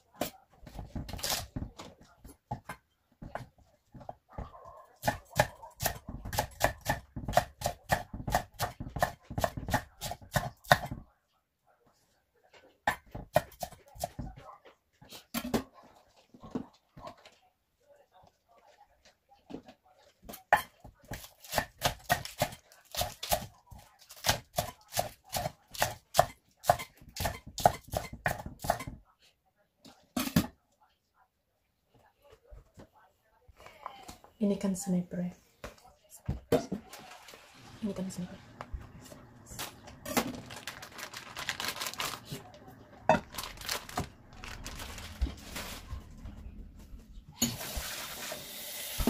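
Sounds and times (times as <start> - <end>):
knife chopping on cutting board: 5.0 - 11.0, 24.2 - 29.0.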